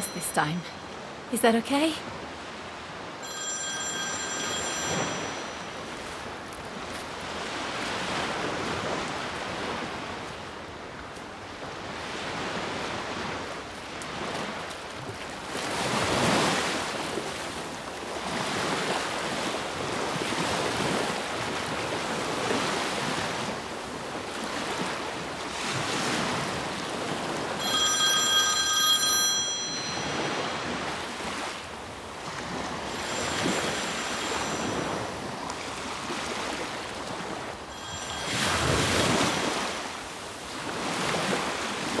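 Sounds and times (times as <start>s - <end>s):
sea waves breaking on shore: 0.0s - 42.0s
telephone ringing: 3.2s - 6.3s, 27.5s - 31.5s, 32.8s - 35.4s, 37.7s - 39.7s.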